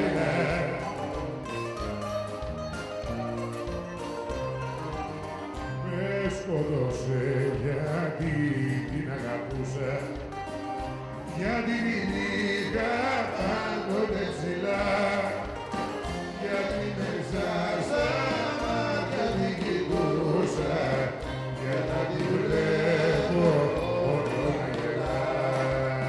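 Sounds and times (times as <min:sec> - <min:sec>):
men singing into microphones: 0:00.0 - 0:01.4, 0:05.8 - 0:10.3, 0:11.3 - 0:26.0
bouzouki and band playing: 0:00.0 - 0:26.0.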